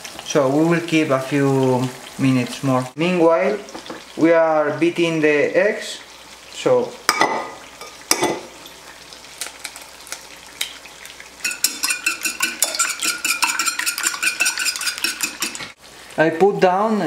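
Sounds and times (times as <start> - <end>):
eggs cracking on bowl rim: 11.4 - 15.7
fork beating eggs in bowl: 11.4 - 15.8.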